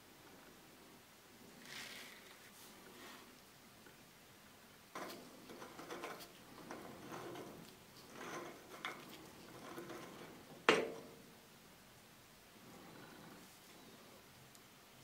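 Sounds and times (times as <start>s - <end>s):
light metal clicks and scraping: 4.9s - 11.3s.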